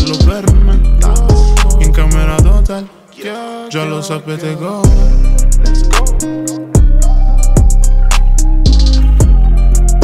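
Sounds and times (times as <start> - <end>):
deep bass notes: 0.0 - 2.7, 4.9 - 10.0.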